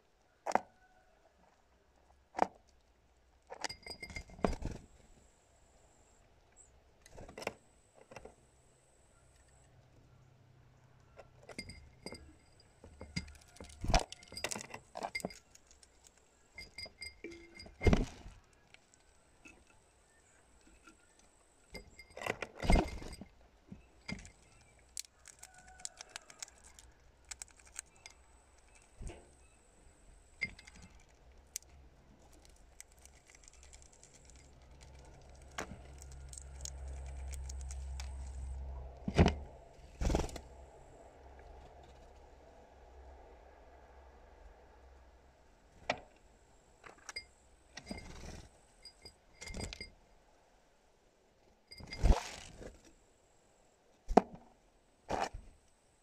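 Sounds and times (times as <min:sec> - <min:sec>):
beaks and claws tapping glass: 0:11.2 - 0:18.0, 0:30.2 - 0:38.5.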